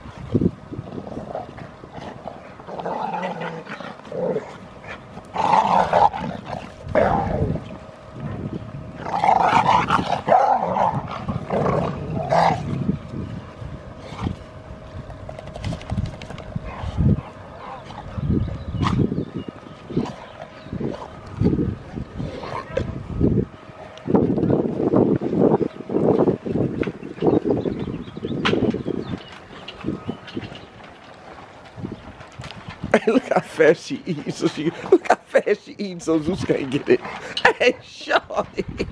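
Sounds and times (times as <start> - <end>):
dogs growling: 0.8 - 12.9, 15.2 - 23.0, 34.1 - 35.2, 36.9 - 37.8
dogs barking: 9.1 - 12.6.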